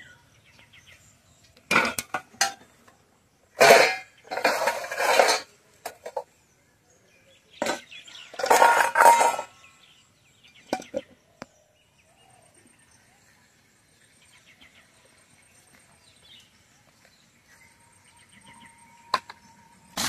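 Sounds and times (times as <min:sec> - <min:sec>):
steel dishes clattering: 0:01.7 - 0:02.7, 0:03.6 - 0:06.3, 0:07.6 - 0:09.7.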